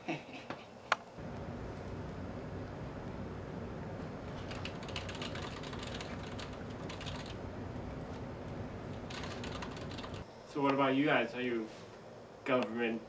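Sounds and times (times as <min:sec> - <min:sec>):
low hum: 0:01.2 - 0:10.2
steady hiss: 0:01.2 - 0:13.0
typing on a keyboard: 0:04.4 - 0:07.4, 0:09.0 - 0:10.2.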